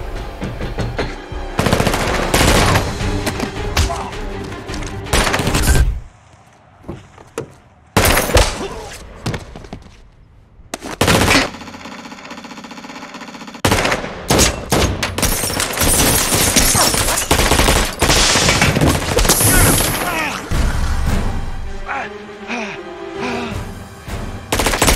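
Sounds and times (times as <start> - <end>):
rapid rifle fire: 13.5 - 14.5, 17.3 - 18.7, 24.5 - 24.9.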